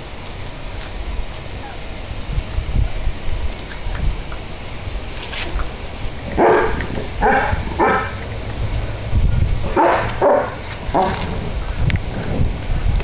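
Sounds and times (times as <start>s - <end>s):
dog barking: 6.4s - 8.2s, 9.7s - 11.2s.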